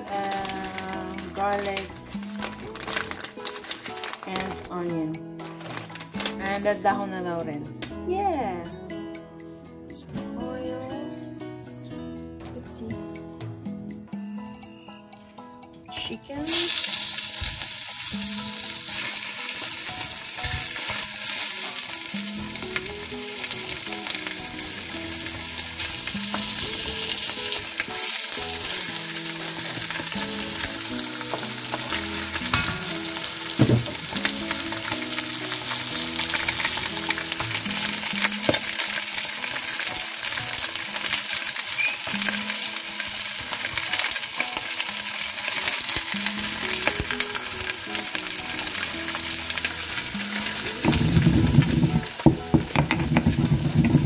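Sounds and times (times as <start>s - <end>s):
meat sizzling in hot oil: 16.4s - 54.0s.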